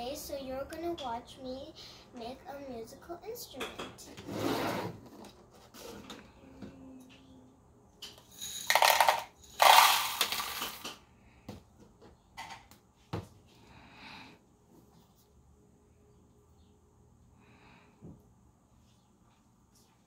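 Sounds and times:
dried seeds rattling: 8.4 - 10.8.

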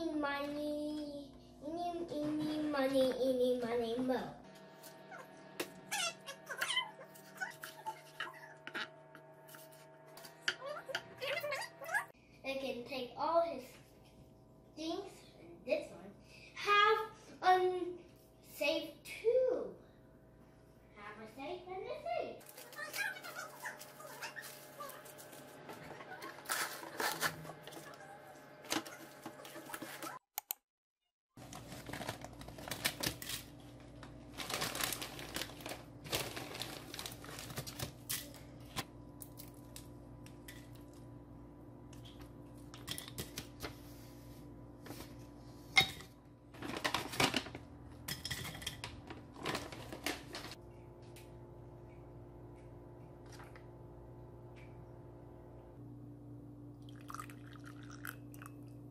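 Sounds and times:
steady low hum: 0.0 - 29.8
plastic wrap and paper crinkling: 22.4 - 25.5, 31.4 - 38.4, 46.5 - 47.7, 48.8 - 50.6.

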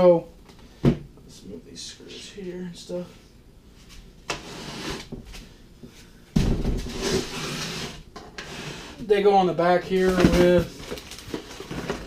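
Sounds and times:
printer scraping across wooden table: 6.9 - 9.0.

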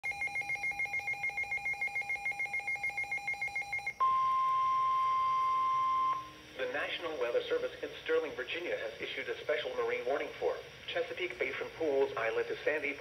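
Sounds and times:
steady single-pitch alarm tone: 0.0 - 6.6.

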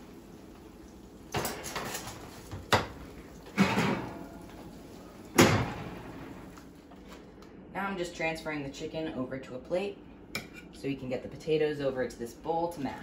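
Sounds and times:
oven door shutting: 5.3 - 6.5.

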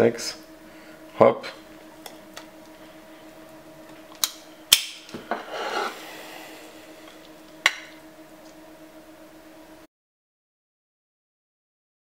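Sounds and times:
utensil scraping: 5.3 - 6.5.

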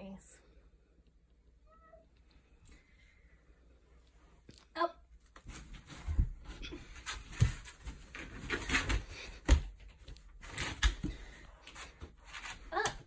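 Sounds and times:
shuffling and rustling: 5.2 - 13.0.

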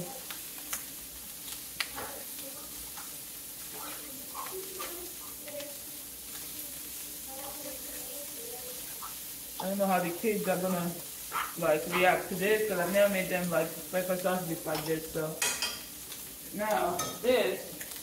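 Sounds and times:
sausage sizzling in a pot: 0.0 - 18.0
utensil scraping against pot: 10.4 - 13.4.

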